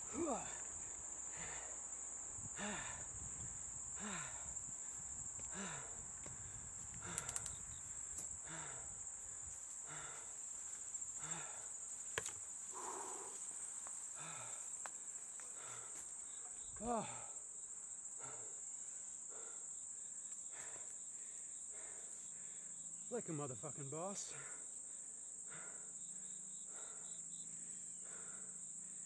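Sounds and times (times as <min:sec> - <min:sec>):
person breathing heavily: 0:00.0 - 0:17.4, 0:18.1 - 0:22.8, 0:24.3 - 0:29.0
crickets chirring: 0:00.0 - 0:29.0
sharp clicks: 0:07.0 - 0:07.6.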